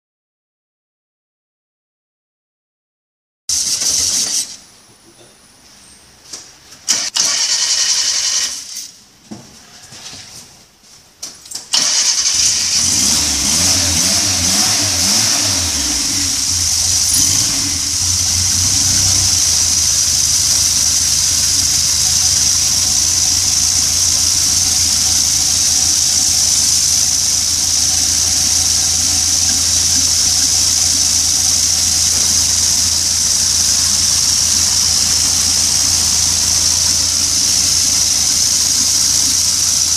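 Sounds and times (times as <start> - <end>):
car engine cranking: 6.9 - 8.8, 11.6 - 39.9
car engine idling: 11.7 - 39.9.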